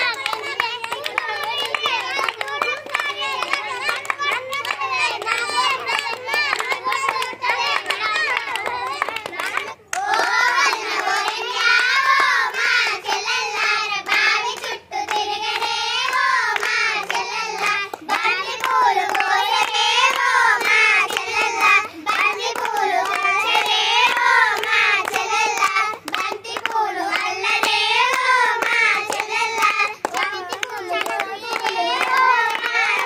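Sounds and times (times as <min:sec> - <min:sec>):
hands clapping in time: 0:00.0 - 0:13.3, 0:14.0 - 0:33.0
girls singing in unison: 0:00.0 - 0:33.0.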